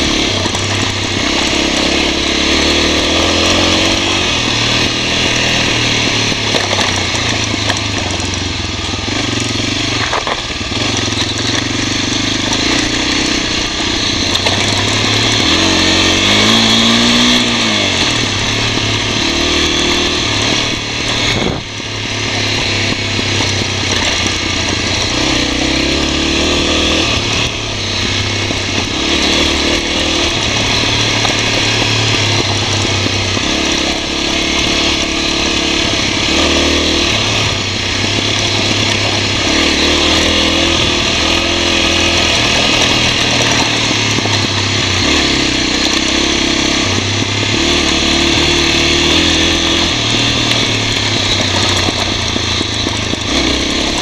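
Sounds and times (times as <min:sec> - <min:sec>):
motorbike engine running: 0:00.0 - 0:54.0
wind noise: 0:11.9 - 0:54.0.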